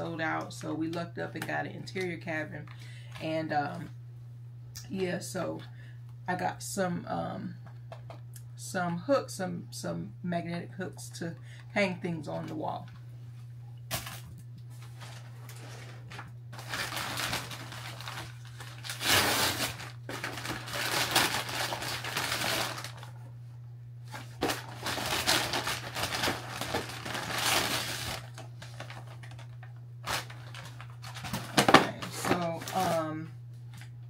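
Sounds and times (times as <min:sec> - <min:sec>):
paper bag rustling: 0:13.9 - 0:23.1, 0:24.1 - 0:33.2.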